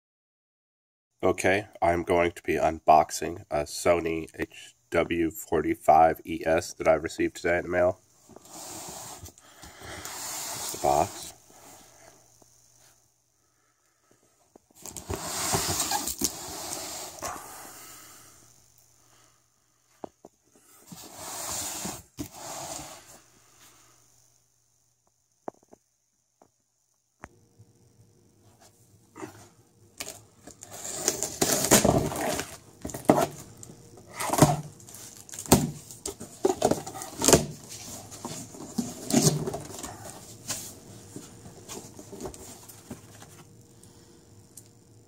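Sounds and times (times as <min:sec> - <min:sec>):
packing tape tearing: 0:14.8 - 0:17.3, 0:30.0 - 0:33.5
cardboard flaps rustling: 0:14.8 - 0:17.4, 0:30.6 - 0:43.5.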